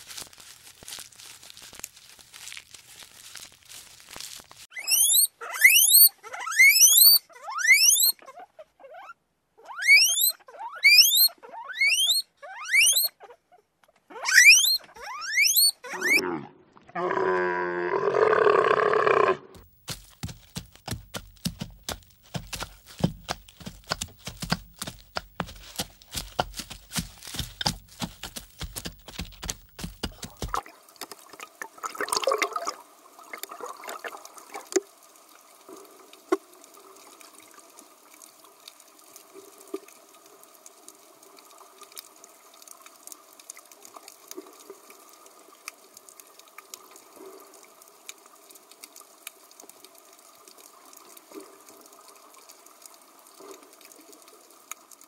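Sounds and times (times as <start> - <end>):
zebra chewing grass: 0.0 - 4.7, 19.6 - 30.6
small ticks underwater: 32.4 - 55.0.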